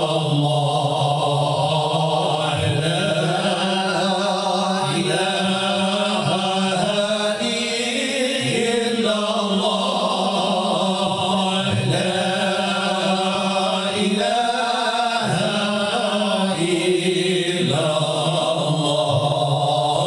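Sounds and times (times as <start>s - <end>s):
men chanting religious songs: 0.0s - 20.0s.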